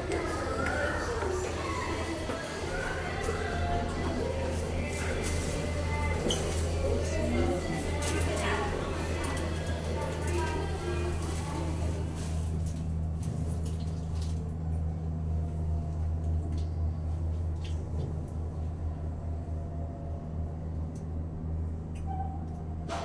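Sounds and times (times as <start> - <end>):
elevator car hum: 0.0 - 23.0.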